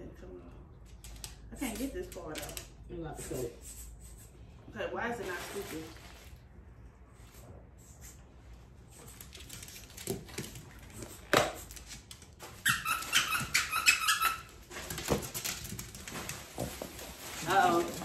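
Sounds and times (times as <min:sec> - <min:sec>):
squeaky dog toy squeaks: 0:12.5 - 0:14.6
rustling: 0:14.4 - 0:18.0.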